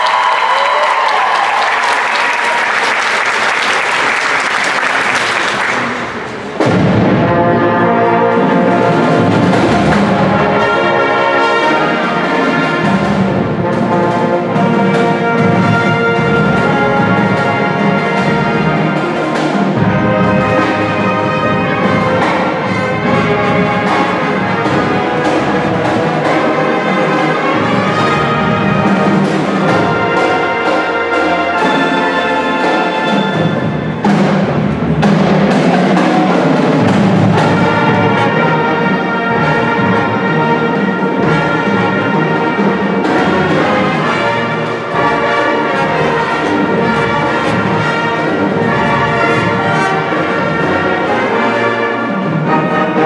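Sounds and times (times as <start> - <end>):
audience applauding: 0.0 - 6.6
marching band brass and drums: 0.0 - 53.0.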